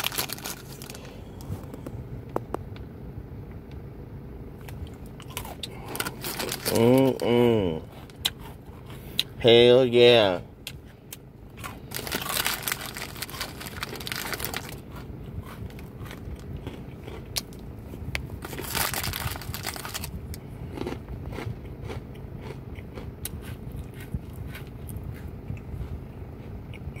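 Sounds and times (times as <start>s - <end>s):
crackers being crunched: 0.0s - 1.9s, 4.6s - 8.6s, 11.5s - 24.6s
steady low hum: 0.0s - 27.0s.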